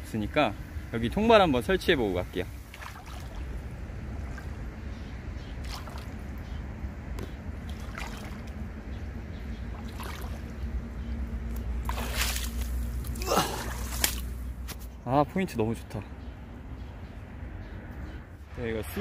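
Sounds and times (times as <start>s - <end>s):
steady low rumble: 0.0s - 19.0s
sloshing steps: 2.6s - 3.5s, 7.2s - 8.6s, 11.8s - 14.4s
footsteps in mud: 11.7s - 14.9s.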